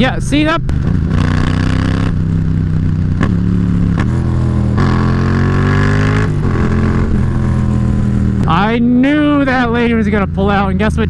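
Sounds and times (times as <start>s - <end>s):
motorcycle engine accelerating: 0.0s - 11.0s.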